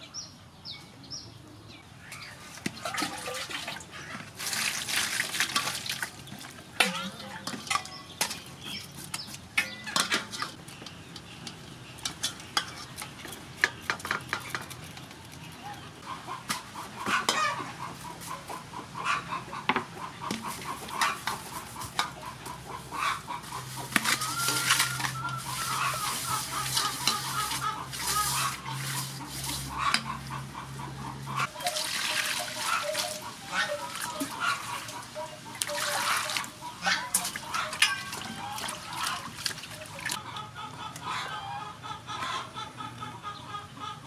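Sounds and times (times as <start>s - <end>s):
clucking calls: 12.0s - 44.0s.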